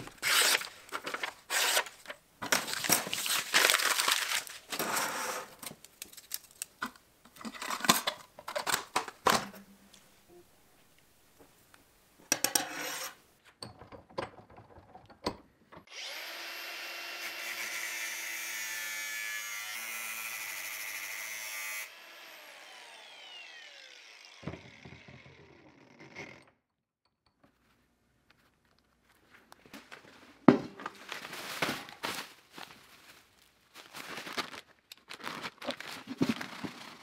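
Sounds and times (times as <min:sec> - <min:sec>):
angle grinder cutting steel: 0:15.9 - 0:26.4
grinder whine spinning down: 0:22.1 - 0:26.3.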